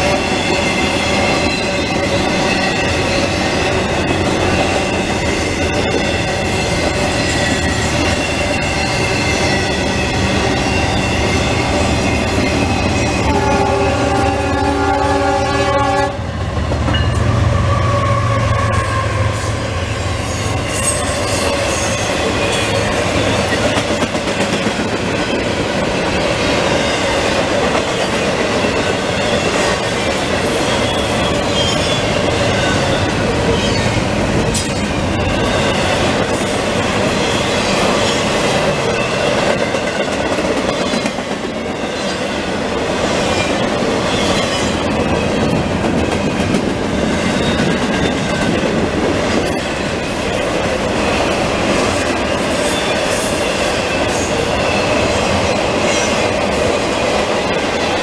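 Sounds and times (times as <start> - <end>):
train wheels rumbling on rail: 0.0 - 58.0.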